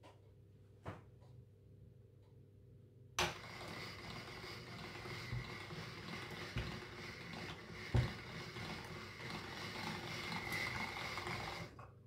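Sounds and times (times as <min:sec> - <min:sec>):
pasta machine gears rattling: 0:03.2 - 0:11.8.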